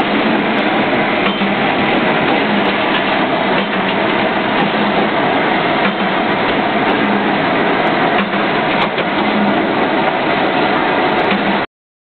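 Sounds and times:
gas furnace rushing: 0.0 - 11.7.

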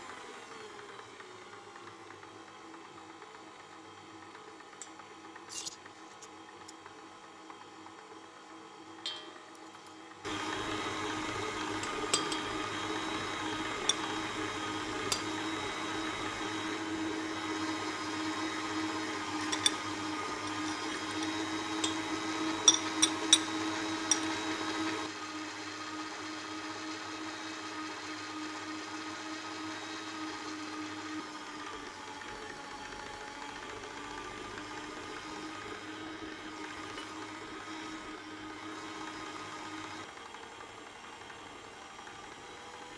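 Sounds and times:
stand mixer motor running: 0.0 - 9.0, 9.9 - 42.9.

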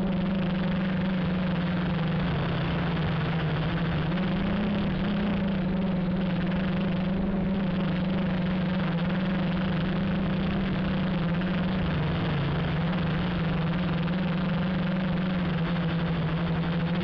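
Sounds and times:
drone motors buzzing: 0.0 - 17.0.

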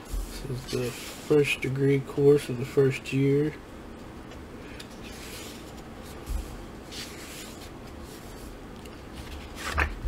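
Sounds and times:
book pages turning: 4.7 - 10.0.

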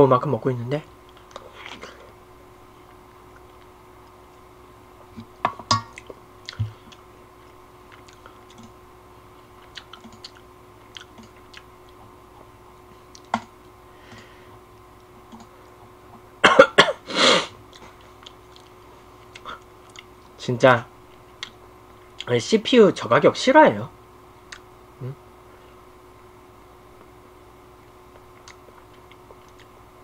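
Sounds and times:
person chewing noodles: 5.9 - 8.7, 9.6 - 13.3, 17.7 - 20.2, 28.1 - 29.8
person clearing throat: 16.4 - 17.6
person coughing: 16.4 - 17.6.

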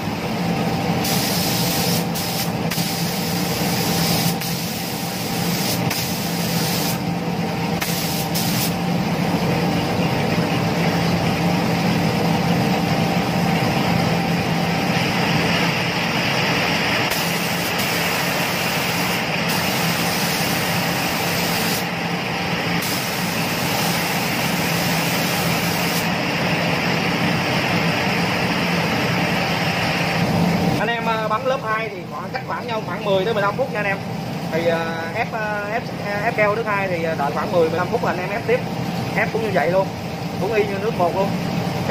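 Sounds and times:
steady machine hum: 0.0 - 41.9
paint spray gun hissing: 1.0 - 7.0, 7.8 - 8.8, 17.1 - 21.9, 22.8 - 26.1.

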